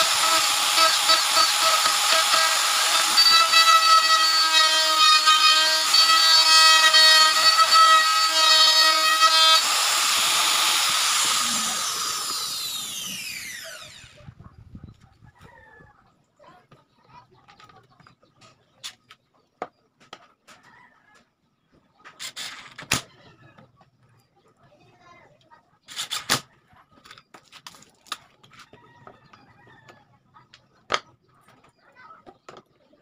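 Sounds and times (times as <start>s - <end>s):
router winding down: 0.0s - 14.2s
router whining: 0.0s - 14.4s.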